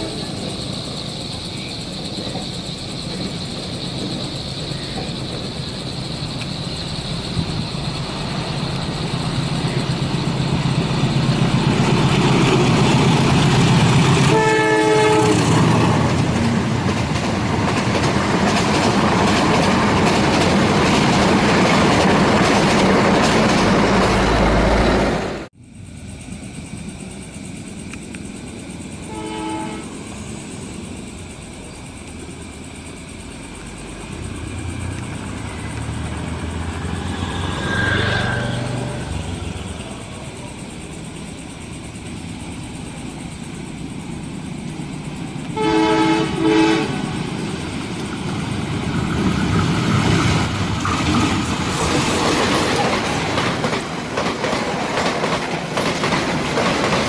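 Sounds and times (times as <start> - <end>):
train rumbling past: 0.0 - 57.0
train horn blasts: 14.2 - 15.6, 29.1 - 30.0, 45.6 - 47.2
wheels clicking over rail joints: 15.2 - 24.2, 47.6 - 57.0.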